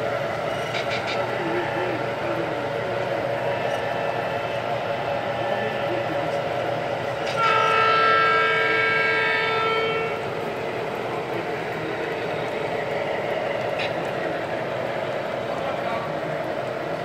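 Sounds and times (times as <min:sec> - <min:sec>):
model train running: 0:00.0 - 0:17.0
model locomotive horn blast: 0:07.3 - 0:10.3.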